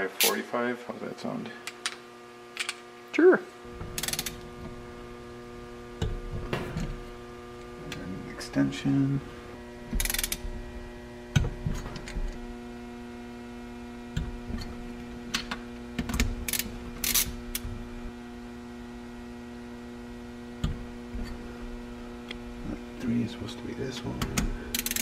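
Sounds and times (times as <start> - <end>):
electrical hum: 0.0 - 25.0
torque wrench clicks and knocks: 3.8 - 4.4, 9.9 - 10.6, 24.2 - 25.0.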